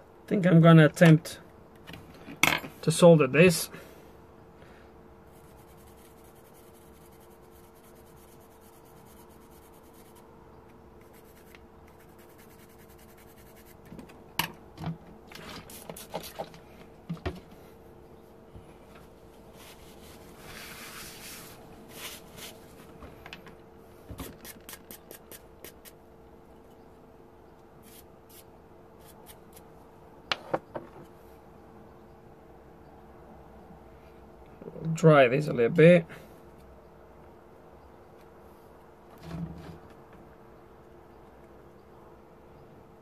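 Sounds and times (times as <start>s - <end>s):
faint steady hum: 0.0s - 43.0s
tools handled on wooden workbench: 1.8s - 2.8s.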